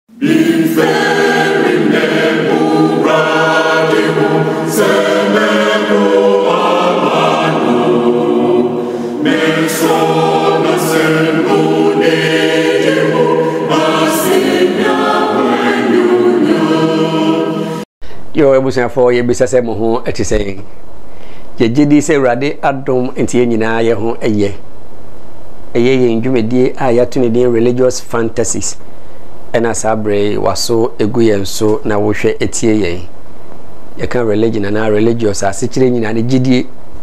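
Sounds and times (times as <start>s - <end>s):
choir singing a cappella: 0.1s - 17.9s.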